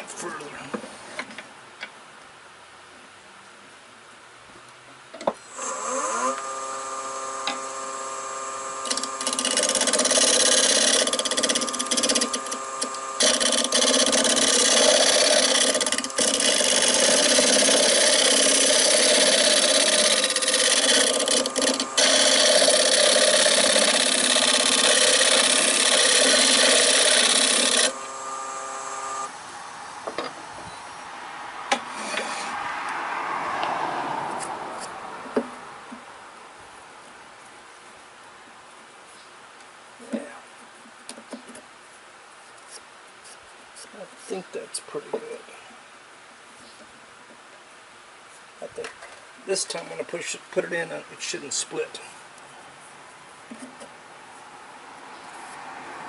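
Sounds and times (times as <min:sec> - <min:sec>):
turning tool scraping wood: 0:05.5 - 0:29.3, 0:31.7 - 0:32.6
wood lathe motor whine: 0:05.5 - 0:30.3.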